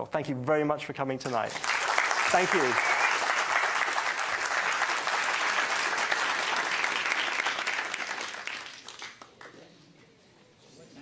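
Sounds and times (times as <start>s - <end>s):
audience applauding: 1.3s - 9.6s.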